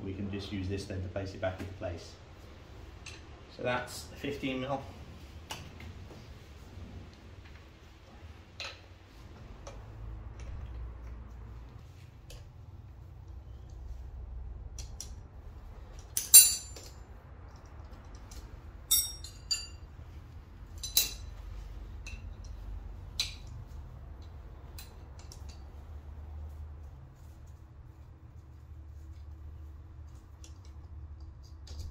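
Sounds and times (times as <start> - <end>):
metal tools clinking: 16.0 - 19.9, 20.7 - 25.7.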